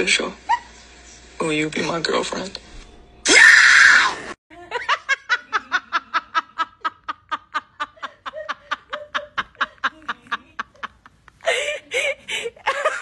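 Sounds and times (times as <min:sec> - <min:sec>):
person laughing: 0:04.6 - 0:13.0.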